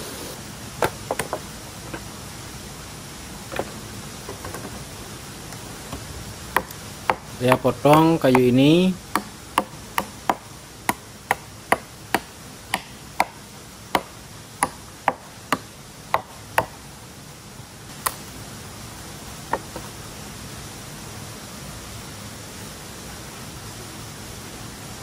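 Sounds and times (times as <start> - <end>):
blade chopping wood: 5.9 - 13.4, 14.0 - 16.8.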